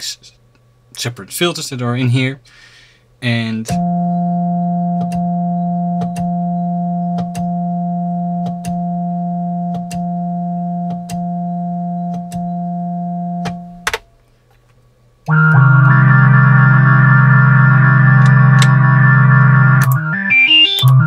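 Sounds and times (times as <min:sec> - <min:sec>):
synthesizer steady note: 0:03.7 - 0:13.8, 0:15.3 - 0:21.0.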